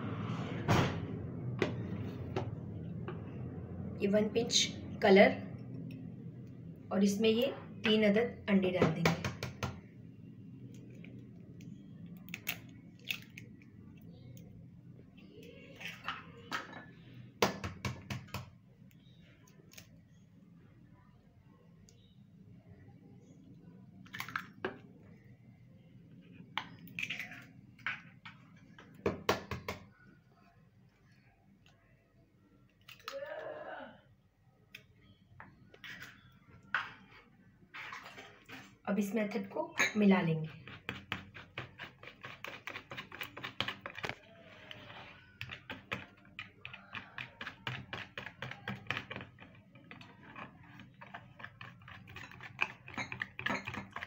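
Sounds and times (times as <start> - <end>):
eggshells cracking: 12.2 - 13.6.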